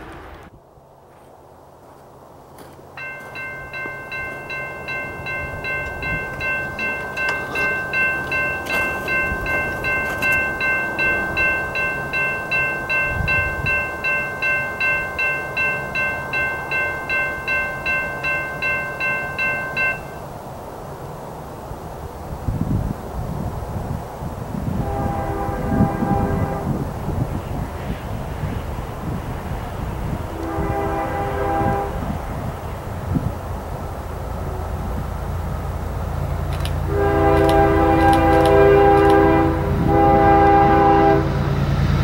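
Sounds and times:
railroad crossing bell ringing: 3.0 - 20.5, 34.4 - 41.2.

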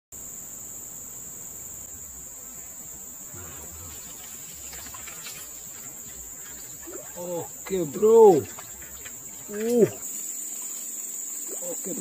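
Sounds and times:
high-pitched insect chorus: 0.2 - 12.0.

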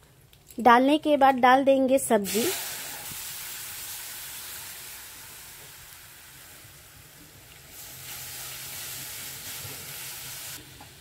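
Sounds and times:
hot oil sizzling: 2.2 - 11.0.

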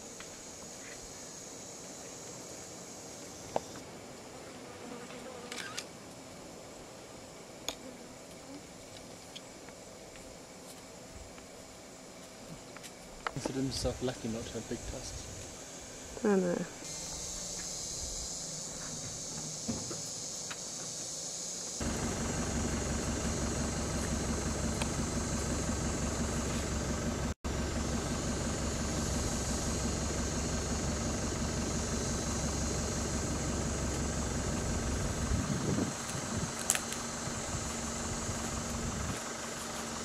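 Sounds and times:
engine idling: 21.8 - 40.0.

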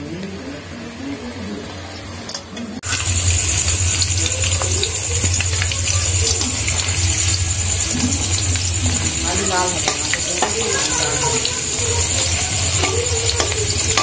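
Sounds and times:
potatoes sizzling in hot oil: 2.8 - 14.0.

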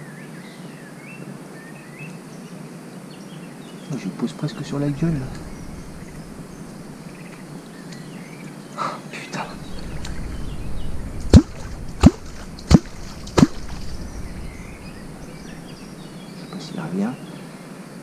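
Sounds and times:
hollow bloop strokes on water: 9.6 - 16.0.

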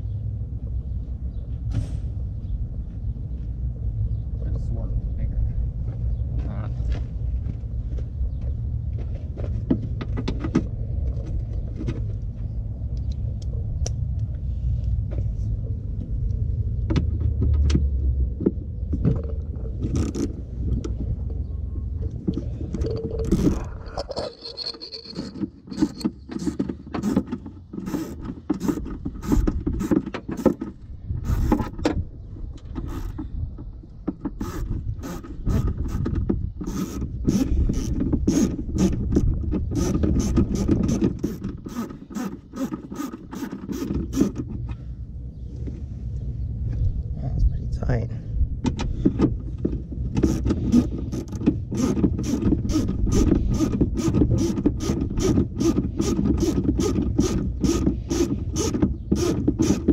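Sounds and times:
low rumble: 10.6 - 25.2, 44.6 - 50.1
clicks knocks and scrapes: 22.2 - 44.8.

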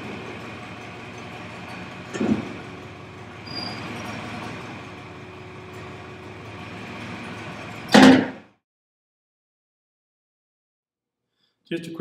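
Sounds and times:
straw spreader mechanical drone: 0.0 - 8.6.

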